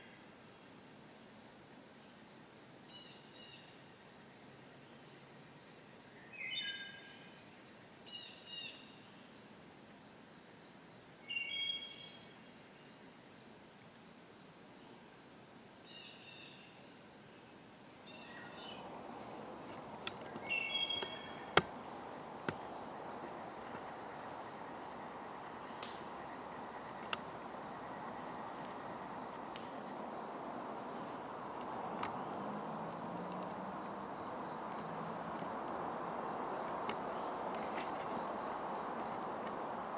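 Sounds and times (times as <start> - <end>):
insect drone: 0.0 - 39.9
broad rustling hiss: 17.6 - 39.9
bird calling: 20.2 - 21.6.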